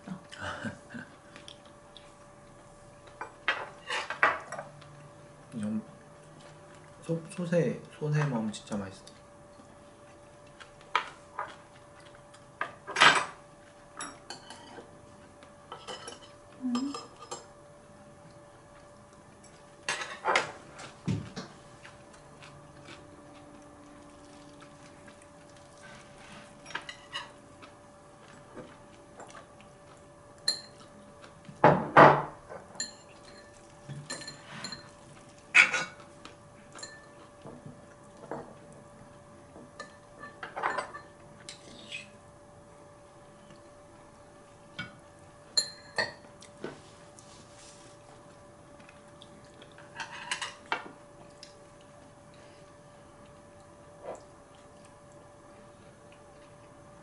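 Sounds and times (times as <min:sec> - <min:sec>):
faint steady hum: 0:00.0 - 0:57.0
cutlery clinking on bowls: 0:14.0 - 0:14.9, 0:15.7 - 0:17.5, 0:30.4 - 0:30.9, 0:32.7 - 0:35.0, 0:35.6 - 0:36.0, 0:36.7 - 0:37.6, 0:39.8 - 0:41.6, 0:44.8 - 0:46.2, 0:49.8 - 0:50.9.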